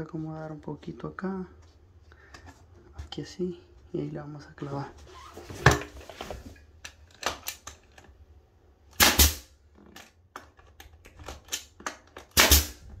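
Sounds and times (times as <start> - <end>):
nail gun shot: 9.0 - 9.5, 12.3 - 12.8.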